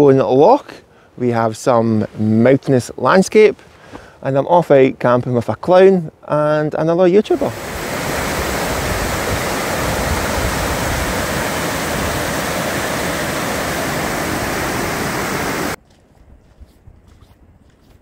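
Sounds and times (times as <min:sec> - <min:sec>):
floodwater rushing down spillway: 0:07.3 - 0:15.8.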